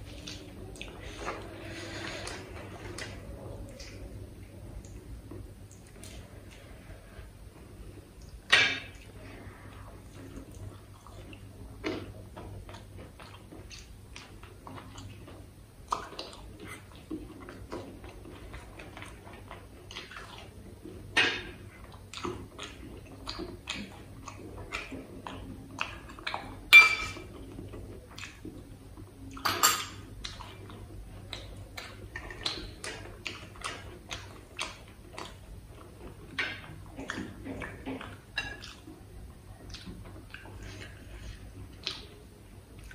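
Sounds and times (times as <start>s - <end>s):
wet chewing and lip smacks: 10.0s - 20.6s, 21.7s - 26.6s, 27.3s - 28.6s, 30.2s - 42.9s.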